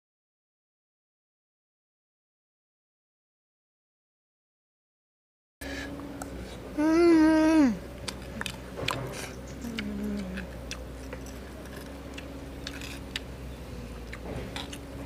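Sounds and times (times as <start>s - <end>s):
faint low voice: 6.7s - 7.8s, 9.6s - 10.6s
fruit clicking and crackling: 7.9s - 15.0s.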